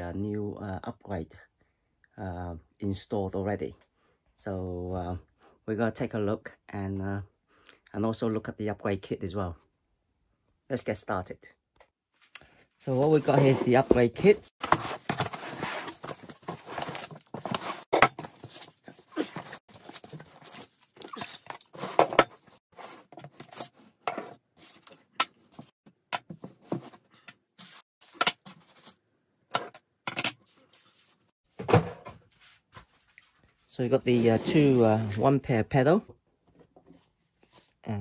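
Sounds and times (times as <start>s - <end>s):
cardboard and foam rustling: 12.8s - 24.9s, 33.8s - 35.4s.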